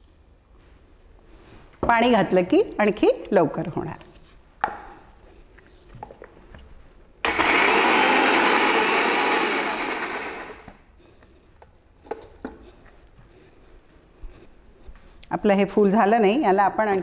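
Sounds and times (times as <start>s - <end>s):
mixer grinder running: 7.2s - 10.8s.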